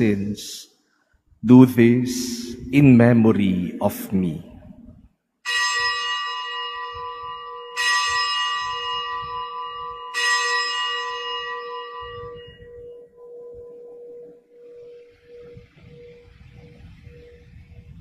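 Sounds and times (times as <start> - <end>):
bell ringing: 5.5 - 15.8.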